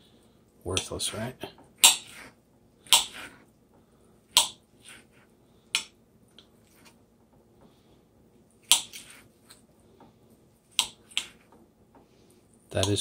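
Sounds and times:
soft cutting sounds: 8.6s - 11.6s.

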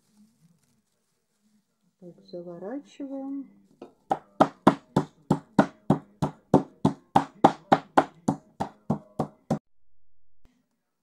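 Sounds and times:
wooden mallet pounding meat: 3.8s - 9.6s.

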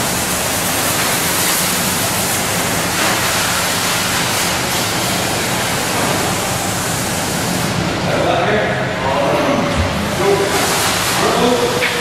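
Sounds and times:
pressure washer spray hissing: 0.0s - 7.7s, 10.1s - 11.9s.

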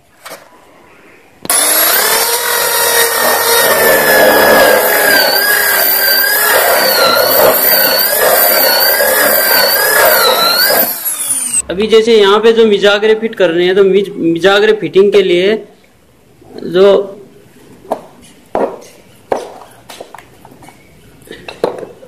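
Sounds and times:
electric drill whining under load: 1.5s - 11.6s.

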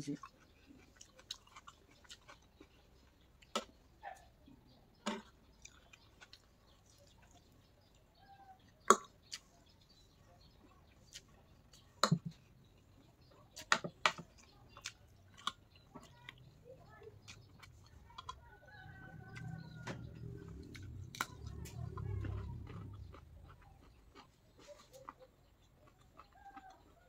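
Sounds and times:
chewing: 0.0s - 27.0s
low rumble: 19.5s - 23.6s.

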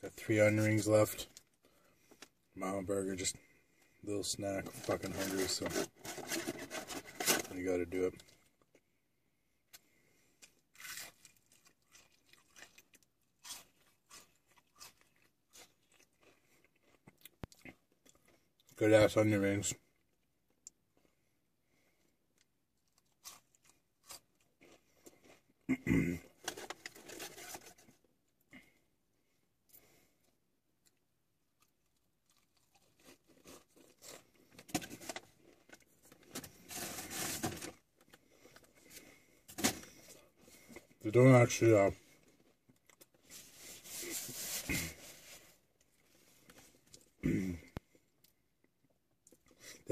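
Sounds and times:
paper bag rustling and crinkling: 4.7s - 7.6s, 36.3s - 37.8s, 43.3s - 45.5s
chewing crunchy food: 10.4s - 18.8s, 22.3s - 27.0s, 31.6s - 34.6s.

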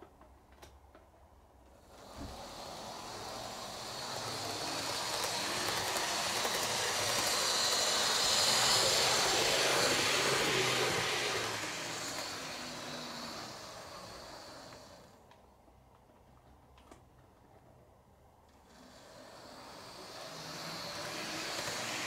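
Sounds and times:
model train running on track: 2.0s - 15.1s, 18.7s - 22.0s.

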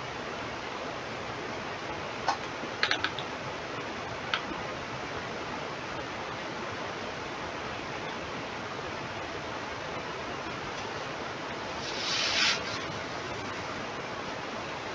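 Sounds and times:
microphone hiss: 0.0s - 14.9s
computer mouse clicks: 2.8s - 3.3s.

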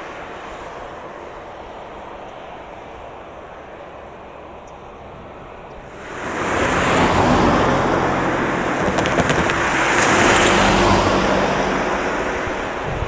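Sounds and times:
car passing close by: 5.9s - 13.0s.

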